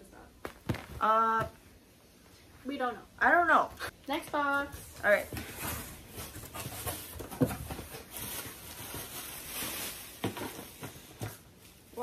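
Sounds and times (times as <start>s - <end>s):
packaging rustling and crinkling: 5.1s - 11.8s.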